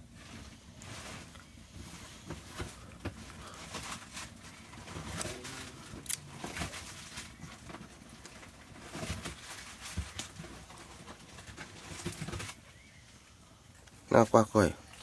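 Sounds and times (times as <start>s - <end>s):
wood fire crackling: 0.0s - 15.0s
faint low animal calls: 5.0s - 6.6s.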